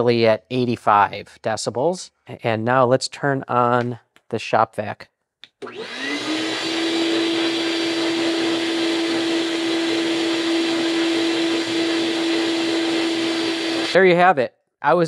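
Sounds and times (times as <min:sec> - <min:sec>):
shop vac motor whine: 0:05.6 - 0:14.0.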